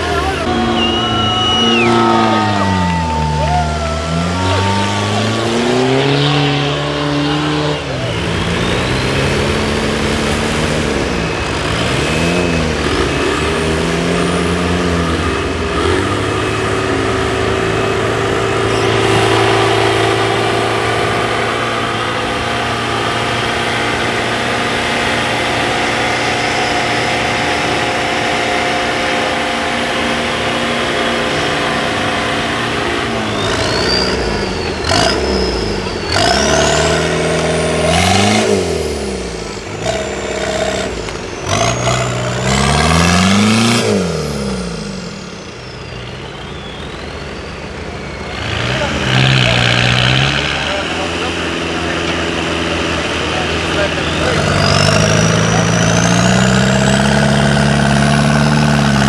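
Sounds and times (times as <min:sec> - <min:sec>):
off-road engines revving: 0:00.0 - 0:59.0.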